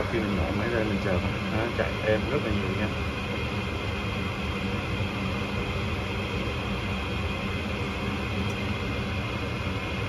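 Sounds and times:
furnace fan motor rushing air: 0.0 - 10.0.

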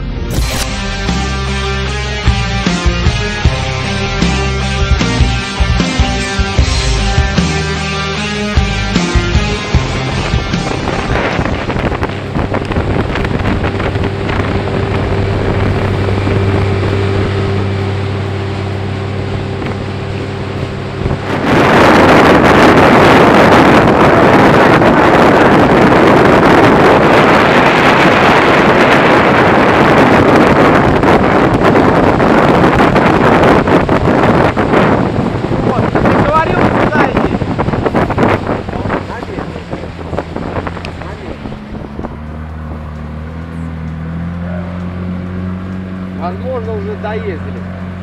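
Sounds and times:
outboard motor drone: 0.0 - 48.0
rushing water: 1.3 - 48.0
wind on microphone: 8.6 - 46.2.

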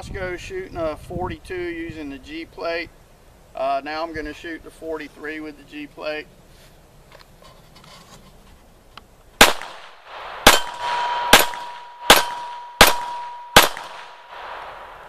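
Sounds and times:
pistol shots echoing: 9.4 - 15.0
steady ringing tone: 10.6 - 13.6.

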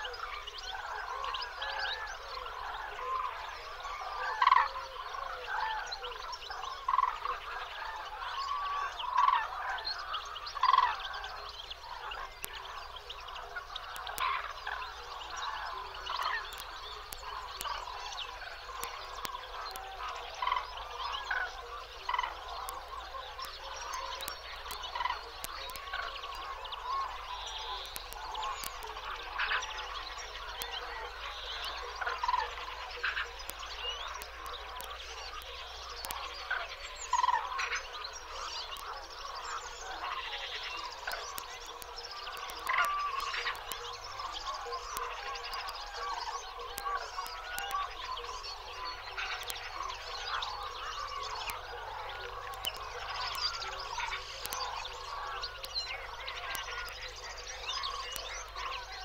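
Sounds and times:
many birds calling: 0.0 - 59.0.

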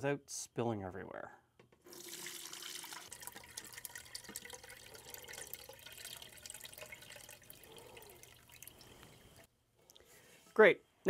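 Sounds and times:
liquid splashing and dripping: 1.9 - 9.5.

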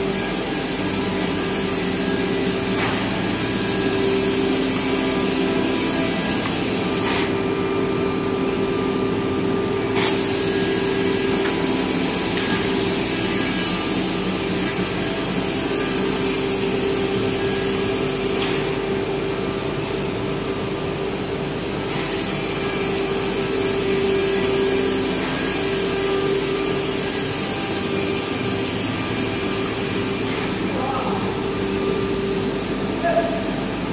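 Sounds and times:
woodworking machine hum: 0.0 - 33.9.

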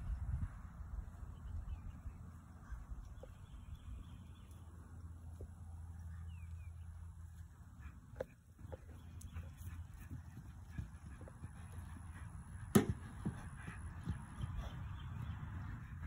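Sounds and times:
low outdoor rumble: 0.0 - 16.0
faint thuds: 12.7 - 14.2.

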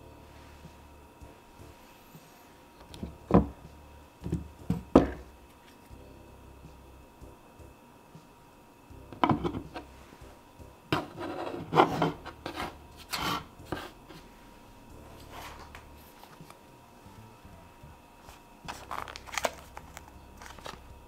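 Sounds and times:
phone case knocking on wood: 4.2 - 5.2
phone case scraping on wood: 11.0 - 14.2.

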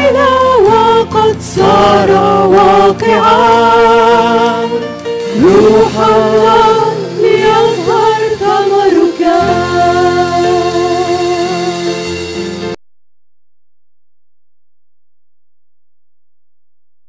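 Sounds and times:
instrumental accompaniment: 0.0 - 12.8.

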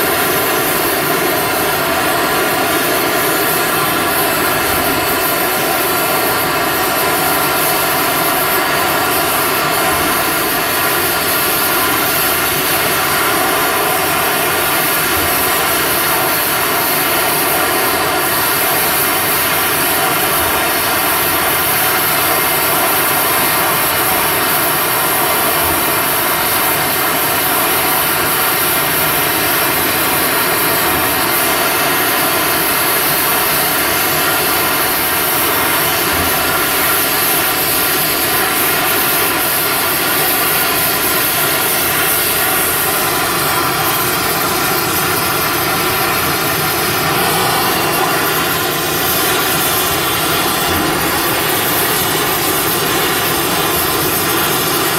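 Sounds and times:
welding torch hissing: 0.0 - 54.9.

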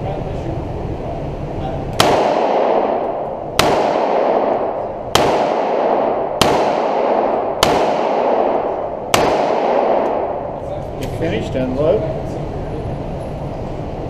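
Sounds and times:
revolver shots echoing indoors: 1.9 - 11.2.

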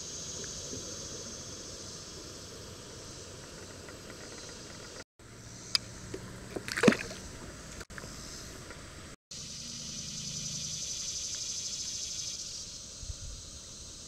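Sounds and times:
outdoor background hiss: 0.0 - 14.0
fish splashing into water: 6.5 - 7.3.

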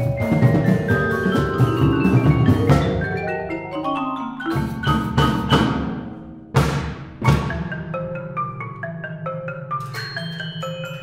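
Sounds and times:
timpani: 0.0 - 3.8, 4.4 - 8.8
marimbas and vibraphone: 0.0 - 6.6, 7.2 - 11.0.

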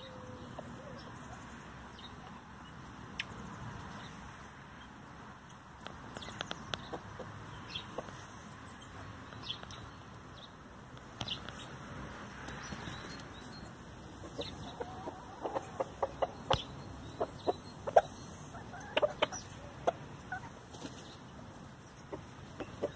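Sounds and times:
hens clucking: 6.5 - 8.3, 14.0 - 22.9.

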